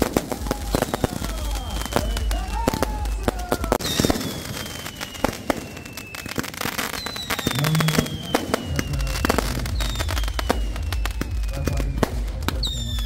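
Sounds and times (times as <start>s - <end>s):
descending firework whistles: 0.0s - 13.0s
fireworks crackling and popping: 0.0s - 13.0s
low rumble: 8.7s - 13.0s.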